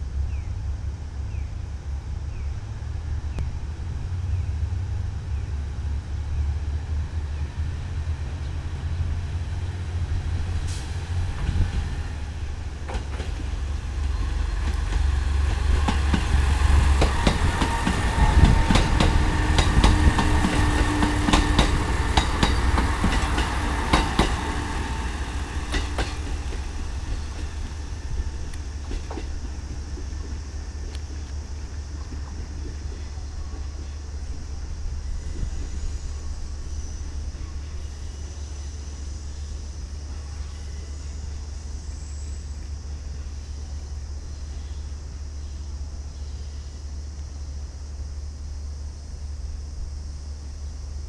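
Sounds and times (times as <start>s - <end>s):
diesel train engines droning: 0.0s - 51.0s
wheels clacking over rail joints: 12.5s - 34.4s.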